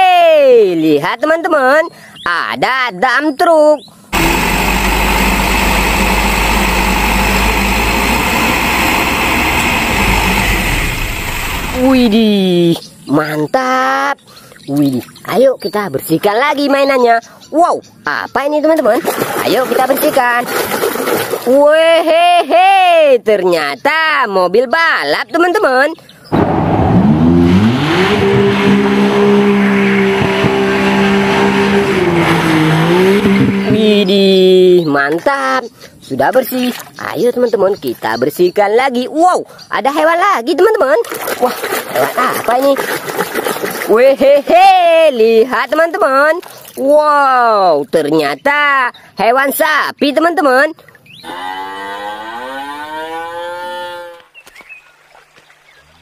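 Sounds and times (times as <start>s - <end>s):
diesel engine running: 4.1s - 12.4s, 26.3s - 34.8s
hydraulic tipper bed raising: 4.2s - 12.2s
tyres spinning with rushing hiss: 4.2s - 12.2s.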